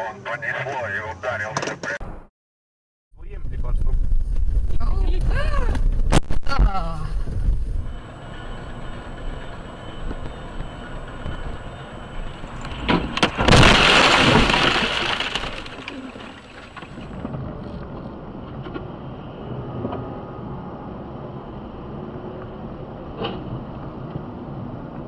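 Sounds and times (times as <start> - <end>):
road noise inside car: 6.7 - 13.5, 16.7 - 25.0
windshield shattering crash: 12.4 - 17.2.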